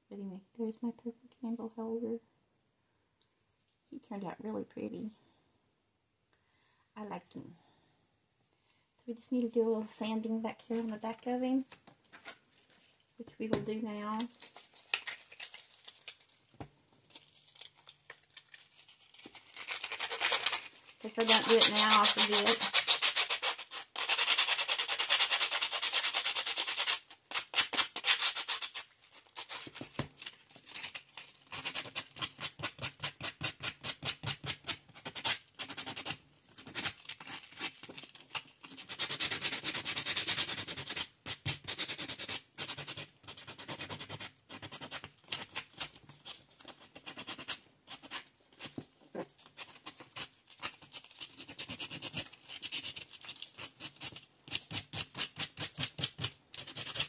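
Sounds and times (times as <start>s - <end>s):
hand sanding scraping strokes: 19.9s - 28.8s.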